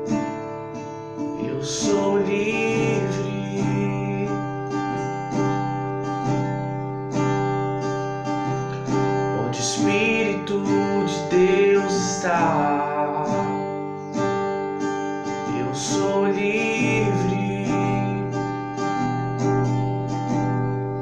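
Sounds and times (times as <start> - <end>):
acoustic guitar strumming: 0.0 - 21.0
man singing: 1.3 - 5.2, 9.1 - 13.8, 15.4 - 18.8.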